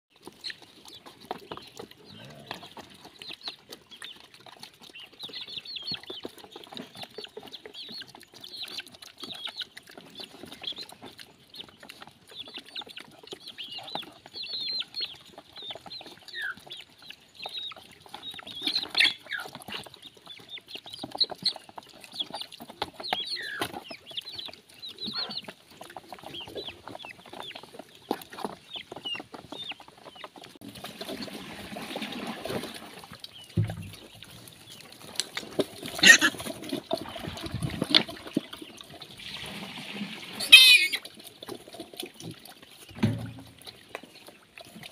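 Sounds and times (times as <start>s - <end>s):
pigs snuffling: 0.1s - 44.9s
young chickens peeping: 0.1s - 44.9s
water sloshing in trough: 15.2s - 44.9s.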